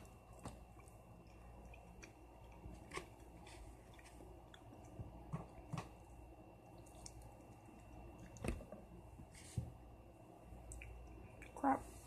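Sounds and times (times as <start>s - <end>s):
person chewing: 0.0s - 5.0s
soft wet mouth clicks: 10.7s - 11.6s.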